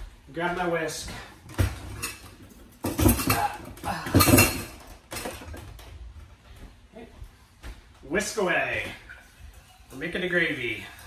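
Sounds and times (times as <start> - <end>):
metal utensils clanking: 1.9 - 5.5.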